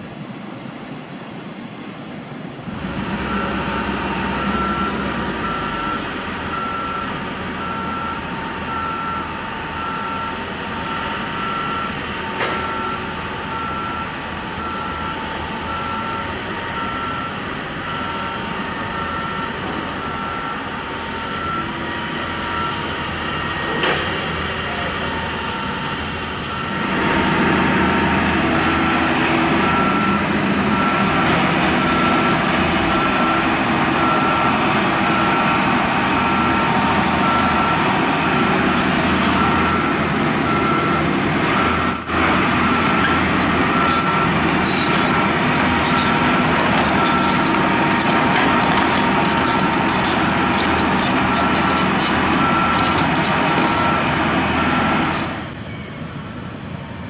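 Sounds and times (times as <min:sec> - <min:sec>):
excavator diesel engine running: 0:02.3 - 0:57.0
travel alarm beeping: 0:03.3 - 0:23.2, 0:25.2 - 0:26.9, 0:27.8 - 0:38.4, 0:39.3 - 0:47.5, 0:48.6 - 0:56.1.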